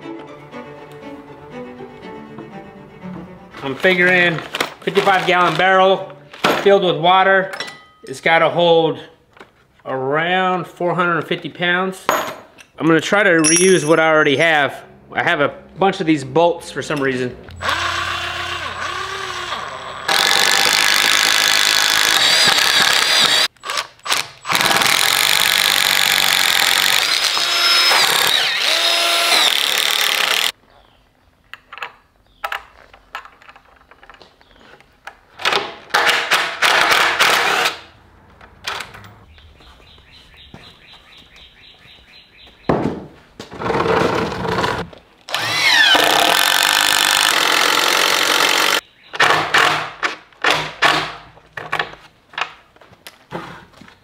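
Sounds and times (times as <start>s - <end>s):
cordless drill boring wood: 17.6s - 30.5s, 44.1s - 48.8s.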